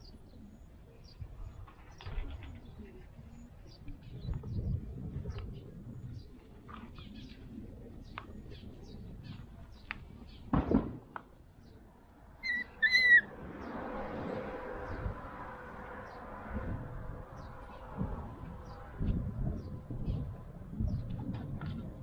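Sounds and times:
faint bird chirps: 0:12.4 - 0:13.3
puppy yelps: 0:12.4 - 0:13.3.

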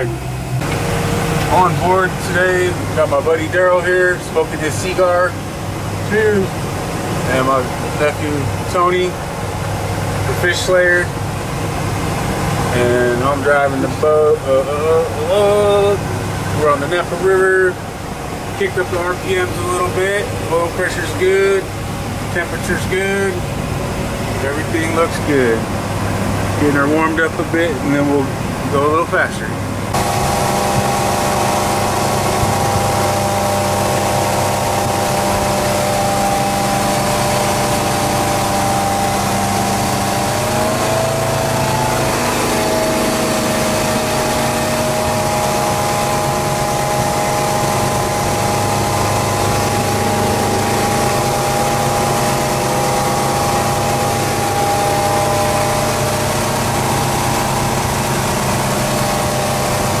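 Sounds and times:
boat engine running: 0:00.0 - 1:00.0
rushing water: 0:29.8 - 1:00.0.

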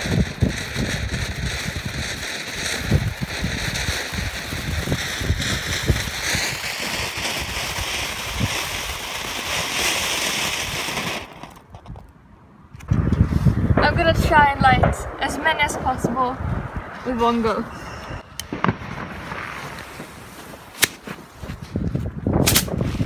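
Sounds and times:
fountain firework hissing: 0:00.0 - 0:11.5
wind buffeting microphone: 0:00.0 - 0:23.0.

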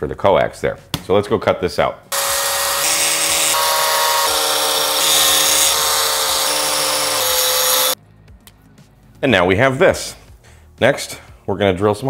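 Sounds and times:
power tool cutting plastic: 0:02.1 - 0:08.0.

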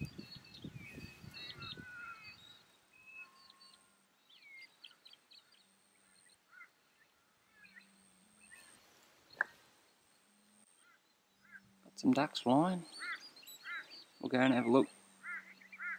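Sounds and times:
wild birds chirping: 0:00.0 - 0:15.9.

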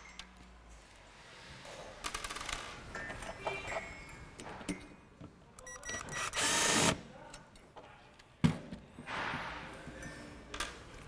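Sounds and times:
cordless drill motor running: 0:06.2 - 0:07.0.

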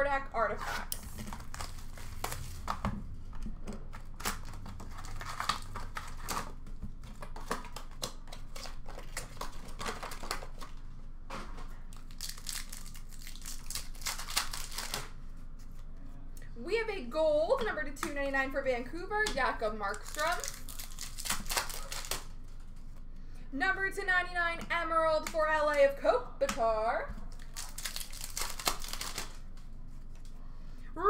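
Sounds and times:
plastic wrap crinkling and tearing: 0:00.6 - 0:02.8, 0:03.9 - 0:10.8, 0:11.7 - 0:15.2, 0:19.9 - 0:22.7, 0:27.3 - 0:30.3
cardboard box and foil packs handled: 0:00.8 - 0:02.8, 0:03.9 - 0:10.8, 0:19.9 - 0:22.3, 0:27.3 - 0:29.6.

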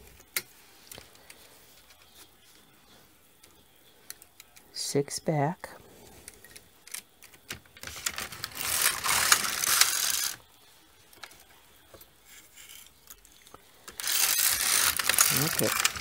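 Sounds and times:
needles clicking: 0:06.2 - 0:10.4, 0:12.3 - 0:16.0
knitting machine carriage clatter: 0:14.0 - 0:16.0.

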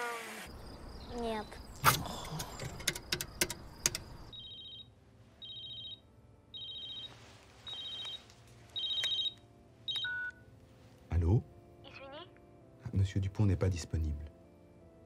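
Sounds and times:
keypad buttons clicking: 0:02.4 - 0:04.2
telephone ringing: 0:04.3 - 0:10.4.

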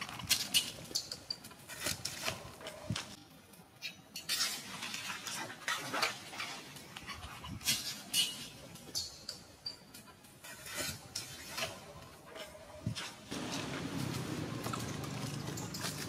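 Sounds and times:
dry leaves crackling on concrete: 0:13.2 - 0:16.0.

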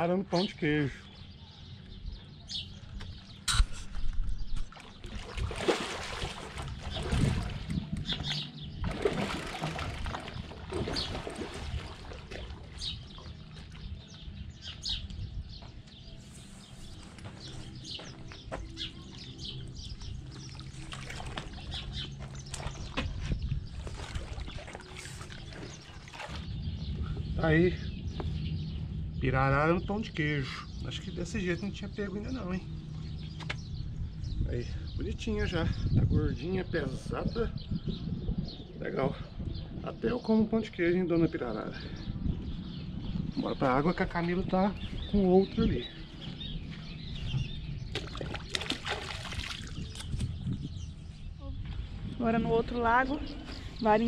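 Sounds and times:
birds chirping: 0:00.0 - 0:54.0
fish thrashing water splashing: 0:04.7 - 0:07.8, 0:08.8 - 0:13.6, 0:20.4 - 0:22.8, 0:23.8 - 0:26.5, 0:48.0 - 0:50.1.

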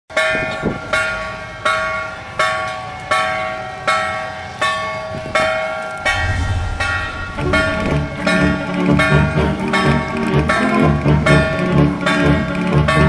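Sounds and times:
deeper bell notes: 0:06.0 - 0:12.4.

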